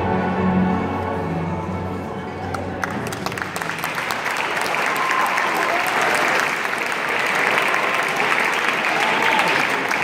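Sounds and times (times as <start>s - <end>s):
audience applauding: 2.4s - 10.0s.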